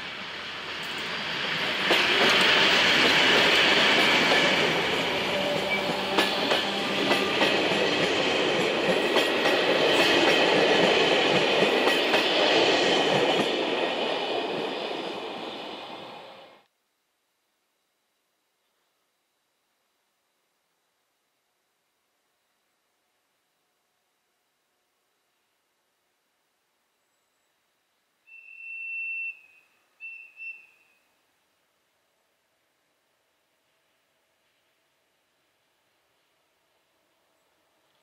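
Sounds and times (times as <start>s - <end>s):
diesel locomotive engine: 0.0s - 16.6s.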